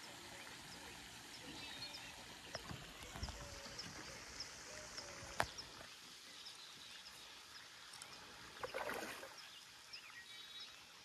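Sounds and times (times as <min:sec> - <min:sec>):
soft steady hiss: 0:00.0 - 0:11.0
rustling splash: 0:08.6 - 0:09.4.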